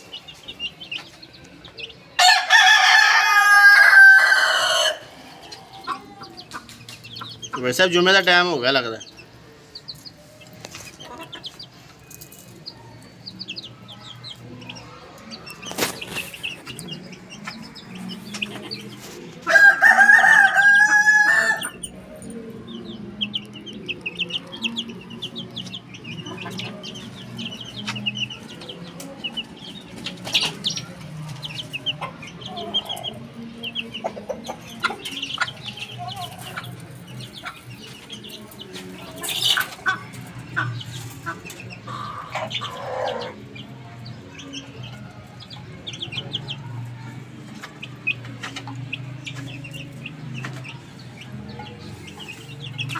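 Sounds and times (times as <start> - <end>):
chickens clucking: 0.0 - 52.9
chicks peeping: 0.0 - 52.9
rooster crowing: 2.2 - 5.2, 19.5 - 21.8.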